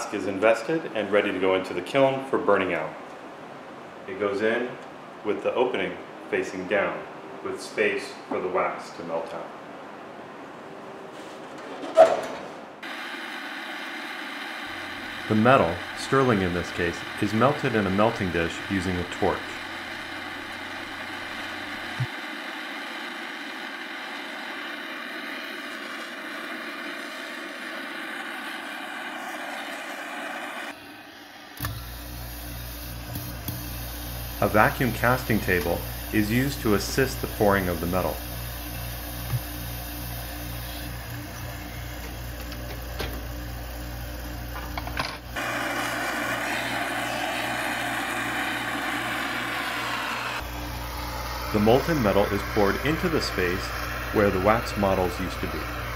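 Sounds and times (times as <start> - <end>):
gas torch flame hissing: 12.8 - 43.9, 44.5 - 55.9
low hum: 13.2 - 55.9.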